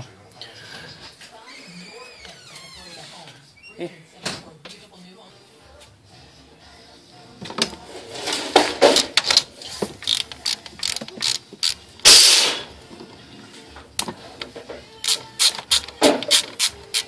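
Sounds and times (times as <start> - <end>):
ratchet rasp: 10.0 - 12.4, 15.0 - 17.0
socket ratchet clicking: 10.0 - 12.4, 15.0 - 17.0.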